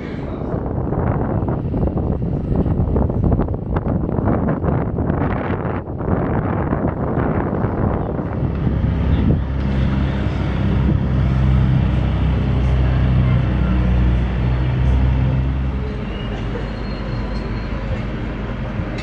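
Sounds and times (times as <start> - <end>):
low engine-like drone: 0.0 - 19.0
wind rumbling on microphone: 0.0 - 19.0.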